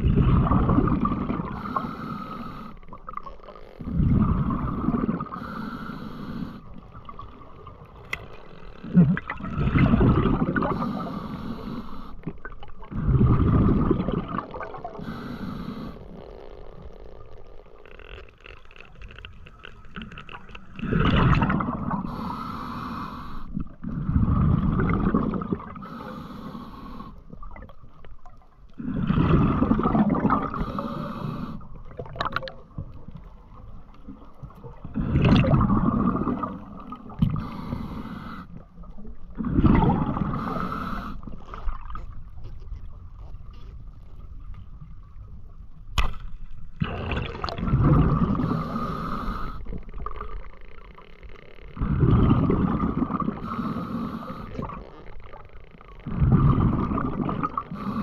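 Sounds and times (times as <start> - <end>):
water gurgling: 0.0 - 5.7, 6.8 - 26.2, 26.9 - 43.0, 46.0 - 58.0
diver breathing through gear: 1.4 - 2.9, 4.3 - 6.8, 10.6 - 12.2, 14.9 - 16.2, 20.6 - 24.6, 25.7 - 27.3, 30.3 - 31.8, 35.0 - 38.7, 39.7 - 41.4, 48.3 - 49.9, 53.2 - 54.8, 57.7 - 58.0.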